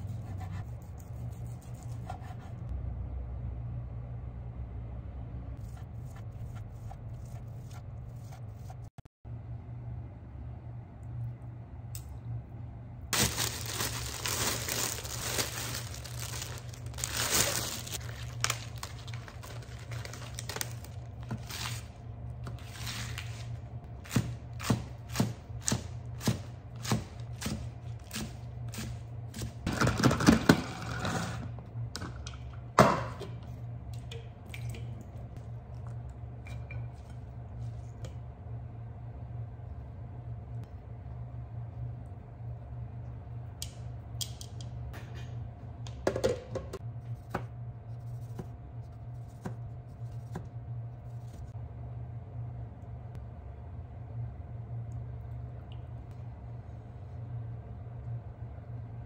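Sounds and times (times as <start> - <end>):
leaves rustling and tearing: 13.2 - 21.9
knife chopping lettuce on board: 24.0 - 29.5.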